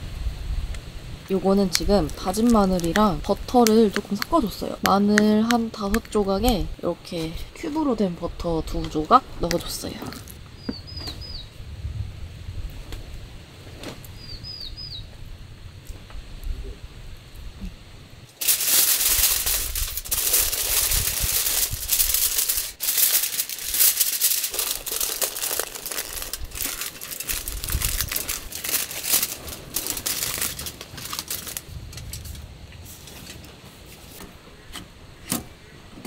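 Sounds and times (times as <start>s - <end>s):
aluminium foil crinkling: 1.3s - 8.0s, 18.3s - 34.2s.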